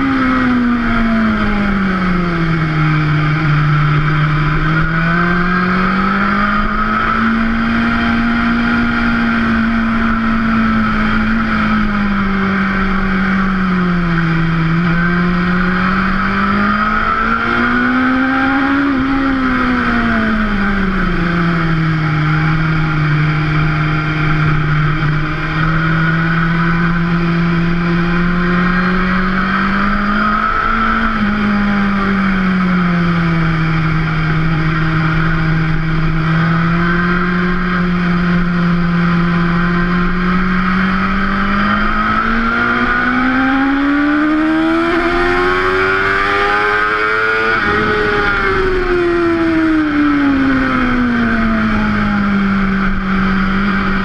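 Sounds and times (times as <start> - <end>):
motorcycle engine at speed: 0.0 - 54.0
wind rush: 46.4 - 51.7.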